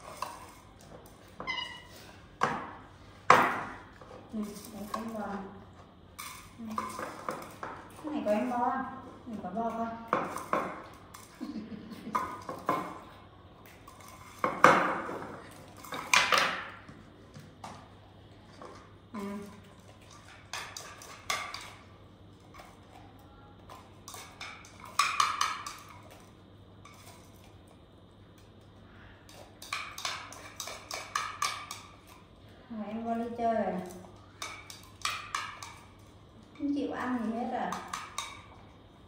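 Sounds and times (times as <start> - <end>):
utensil scraping a dish: 0.0 - 2.2, 29.2 - 32.2.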